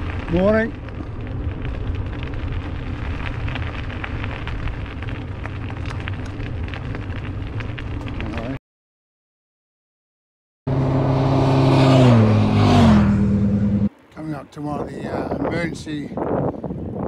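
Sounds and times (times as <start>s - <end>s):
bike tyres rolling on gritty surface: 0.0s - 8.6s
wind buffeting microphone: 14.2s - 17.0s.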